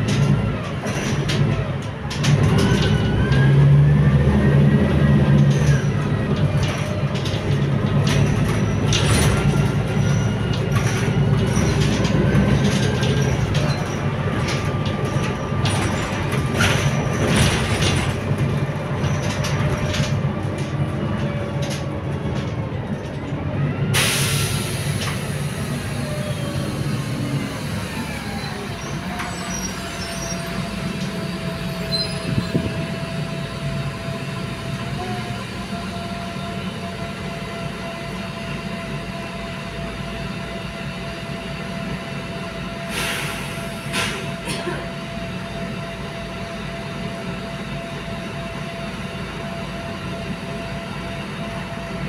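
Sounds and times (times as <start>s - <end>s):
bus engine drone with whine: 0.0s - 52.0s
compressed air hiss: 42.9s - 44.3s.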